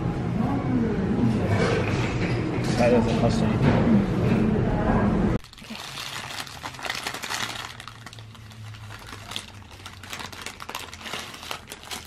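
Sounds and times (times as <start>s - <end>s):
paper wrapper crinkling: 5.4s - 12.0s.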